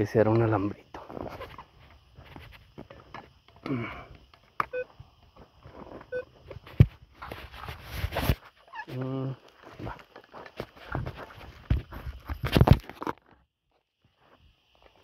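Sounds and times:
metal detector beeps: 4.6s - 4.9s, 6.1s - 6.3s
footsteps: 5.4s - 12.8s.

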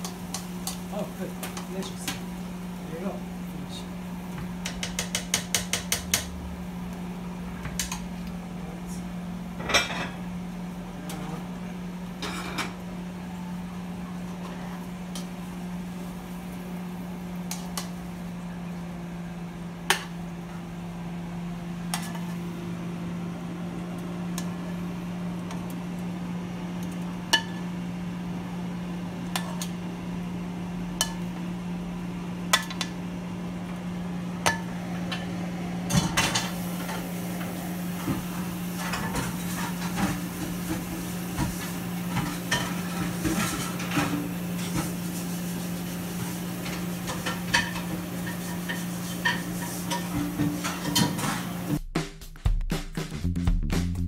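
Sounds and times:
metal knocking on pan: 4.6s - 6.3s
metal tongs scraping in a wok: 46.6s - 51.5s.

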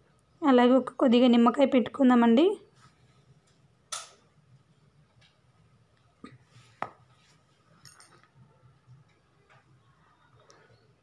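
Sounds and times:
sharp clicks of cookware: 3.9s - 4.2s.

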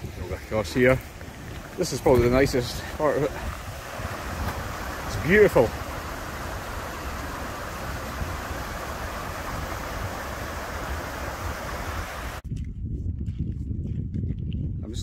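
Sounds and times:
river water rushing over rocks: 0.7s - 12.4s.

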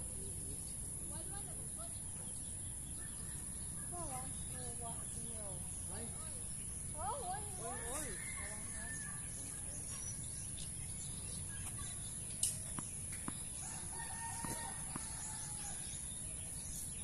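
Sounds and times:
rooster crowing: 7.6s - 9.4s, 13.6s - 15.9s.

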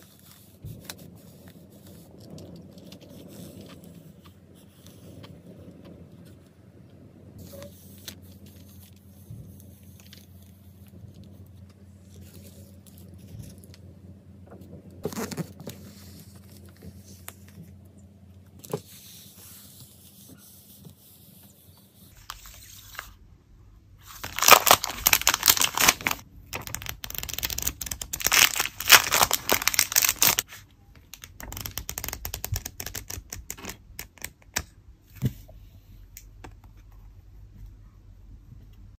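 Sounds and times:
plastic packaging crinkling: 22.2s - 23.2s, 24.0s - 34.3s.

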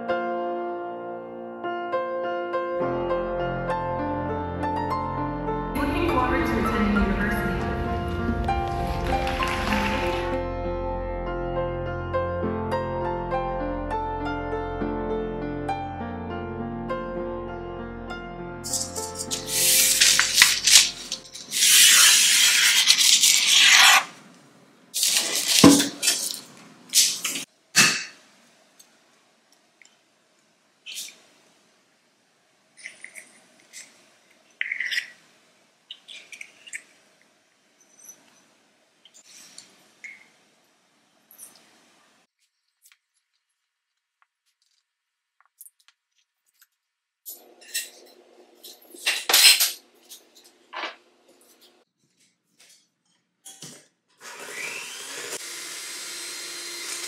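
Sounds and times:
paper rustling: 8.6s - 10.4s, 18.7s - 24.2s, 25.0s - 27.5s
kitchenware clinking and clattering: 8.7s - 10.4s, 18.7s - 21.7s, 25.0s - 28.2s, 32.8s - 35.2s, 47.3s - 51.7s.

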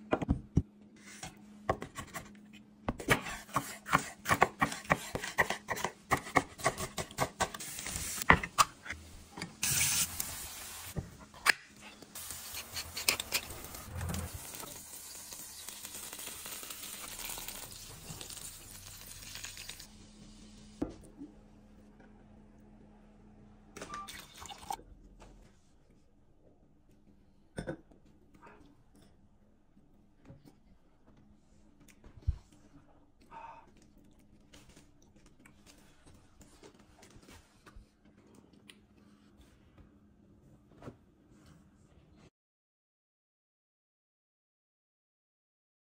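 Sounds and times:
low room hum: 0.0s - 42.3s
sauce sizzling in a frying pan: 13.6s - 20.5s.

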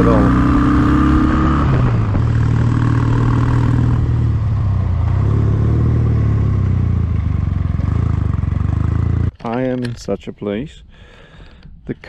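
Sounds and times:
motorcycle engine running: 0.0s - 9.4s.

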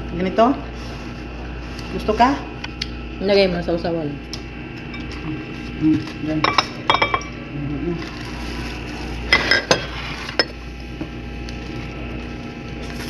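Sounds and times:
steady low hum: 0.0s - 13.0s
dishes and utensils clinking: 6.4s - 7.4s, 9.3s - 10.6s.

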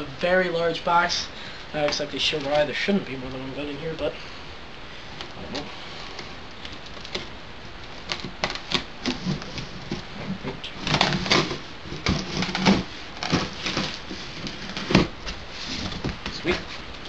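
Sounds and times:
cardboard flaps scraping: 5.6s - 17.0s
tape tearing off cardboard box: 7.9s - 10.0s.

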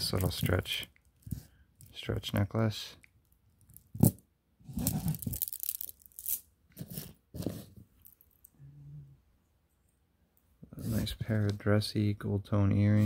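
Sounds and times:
bead necklace rustling and clattering: 3.6s - 8.5s.

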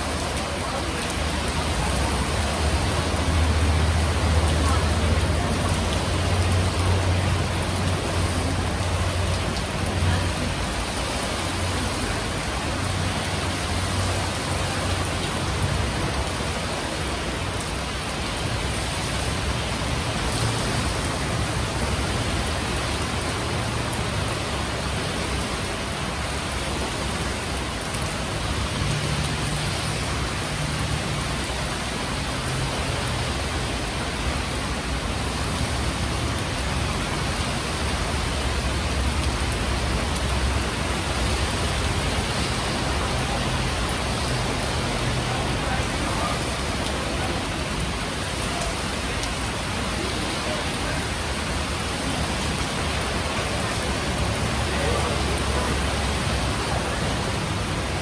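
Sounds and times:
steady rain falling: 0.0s - 58.0s.

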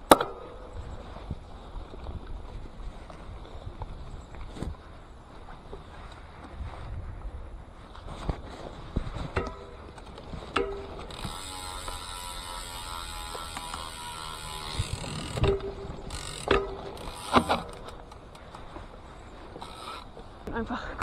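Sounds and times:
bike clicks and knocks: 0.0s - 4.8s, 7.9s - 20.4s
bicycle freehub ticking: 9.3s - 20.2s.

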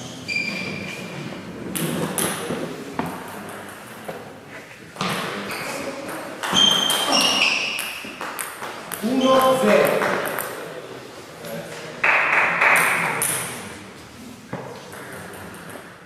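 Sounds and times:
shoe squeaks: 0.0s - 1.2s, 5.4s - 8.1s.

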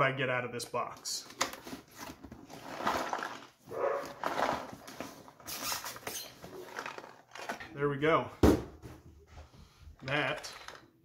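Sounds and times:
cardboard scraping and rustling: 1.5s - 7.2s.

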